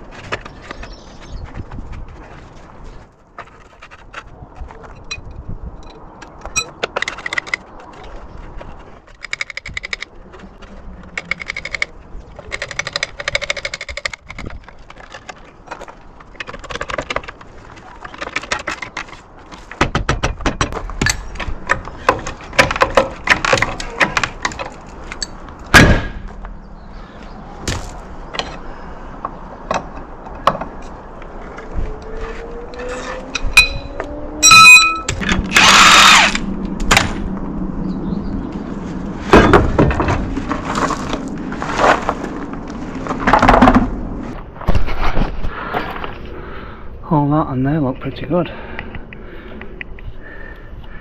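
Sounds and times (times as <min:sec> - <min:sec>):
sharp knocks and cracks: 0:11.2 - 0:26.5, 0:27.6 - 0:28.6, 0:35.1 - 0:37.3, 0:39.3 - 0:42.3.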